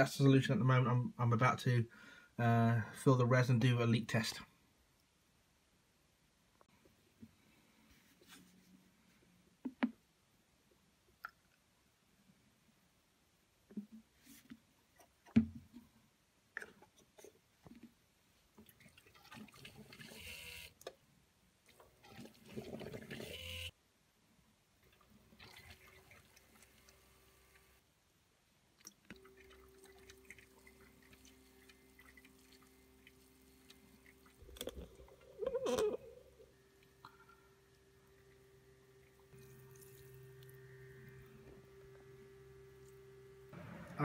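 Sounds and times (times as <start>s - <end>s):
liquid pouring and gurgling: 18.6s - 20.3s, 22.0s - 23.5s, 24.9s - 27.0s, 28.9s - 37.4s, 39.0s - 40.6s
pump humming: 19.0s - 20.7s, 21.9s - 23.7s, 29.1s - 44.0s.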